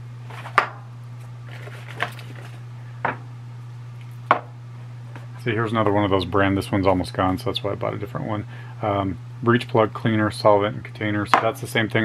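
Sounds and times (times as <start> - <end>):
steady low hum: 0.0 - 12.0
containers knocking on a workbench: 0.5 - 0.8, 3.0 - 3.2, 4.3 - 4.5.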